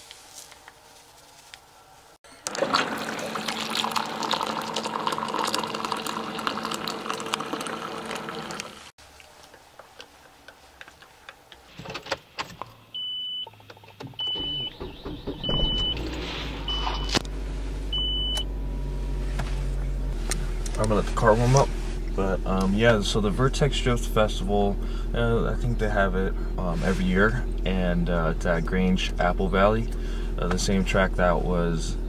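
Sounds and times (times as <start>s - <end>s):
hot water pouring into mug: 2.4s - 8.9s
car engine starting and idling: 11.9s - 32.0s
car warning chime beeping: 12.9s - 13.6s, 14.2s - 17.2s, 17.9s - 18.5s.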